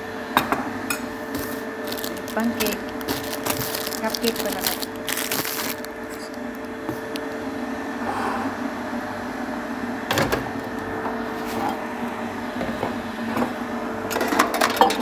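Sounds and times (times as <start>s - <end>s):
kitchen appliance humming: 0.0s - 15.0s.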